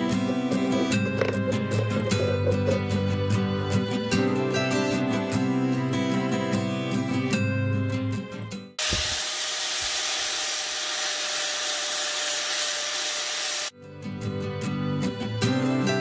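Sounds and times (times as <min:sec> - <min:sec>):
angle grinder sanding wood: 0:08.8 - 0:13.7.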